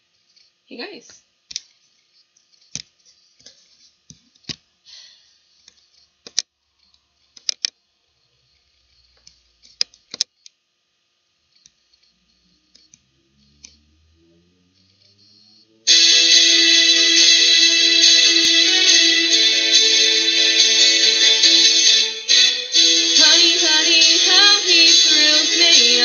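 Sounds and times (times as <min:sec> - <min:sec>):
hands clicking and tapping a device: 0:02.4 - 0:04.7, 0:05.6 - 0:07.8, 0:09.2 - 0:10.6.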